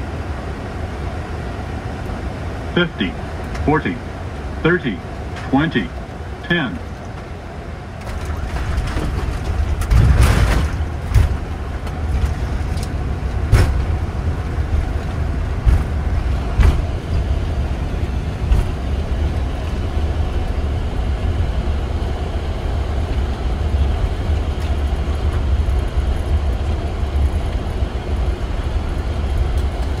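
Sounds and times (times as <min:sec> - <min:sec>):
low rumble of landing roll: 0:08.0 - 0:21.8
aircraft touchdown rush and thump: 0:08.0 - 0:30.0
wheels thumping on runway: 0:13.4 - 0:17.6, 0:18.4 - 0:19.8.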